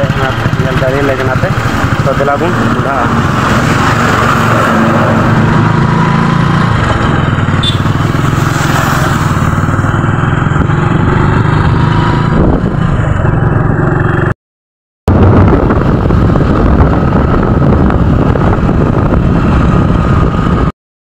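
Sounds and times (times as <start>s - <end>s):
motorcycle engine running: 0.0s - 14.3s.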